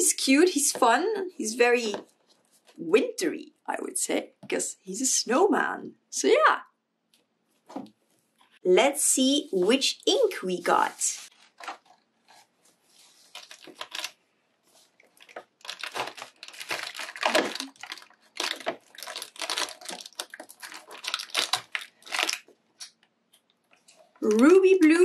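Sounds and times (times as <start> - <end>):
cardboard tearing and rustling: 13.2 - 14.2, 15.2 - 22.5.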